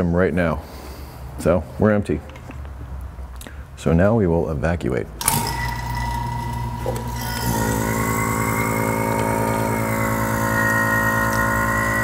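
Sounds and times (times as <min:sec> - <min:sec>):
vacuum pump running: 0:05.2 - 0:12.0.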